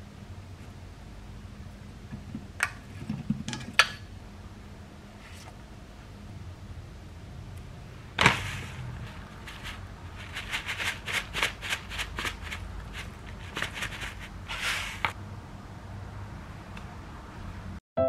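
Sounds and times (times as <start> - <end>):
shaker rattling: 8.6 - 14.6.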